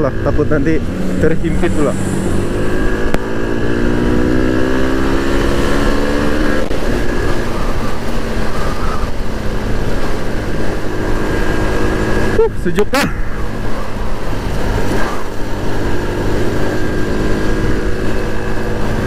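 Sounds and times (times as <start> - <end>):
wind noise on microphone: 0.8 - 12.4
scooter engine pulling: 5.8 - 12.6.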